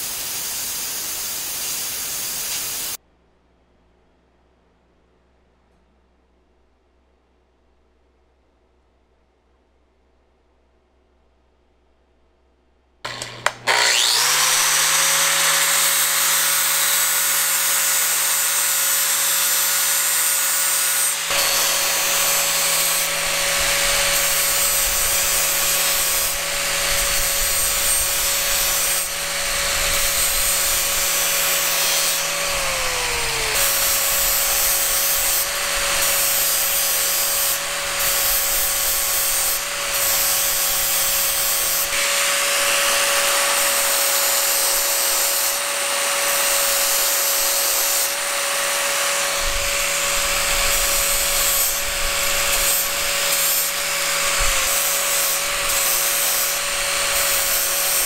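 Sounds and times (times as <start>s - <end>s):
angle grinder motor whine: 13.1s - 58.0s.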